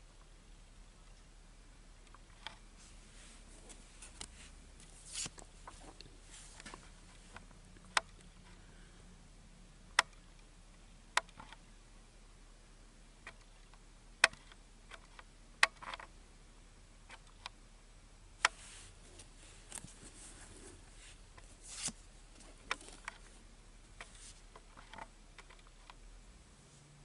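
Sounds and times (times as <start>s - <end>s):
card swishes: 21.6s - 22.0s.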